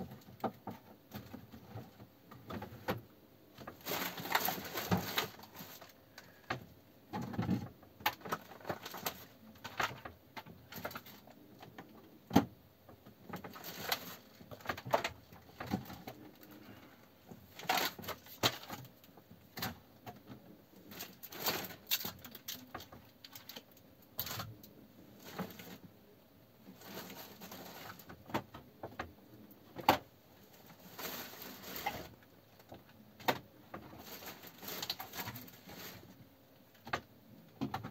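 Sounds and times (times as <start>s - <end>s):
plastic bag rustling: 3.5s - 6.4s, 8.1s - 11.3s, 13.3s - 16.7s, 17.4s - 19.0s, 20.8s - 25.9s, 26.6s - 28.3s, 30.6s - 32.4s, 33.8s - 36.2s.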